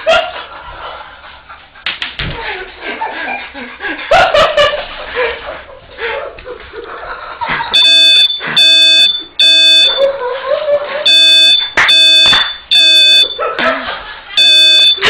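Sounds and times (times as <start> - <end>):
electronic alarm beeping: 7.7 - 10.1, 11.1 - 13.4, 14.4 - 15.0.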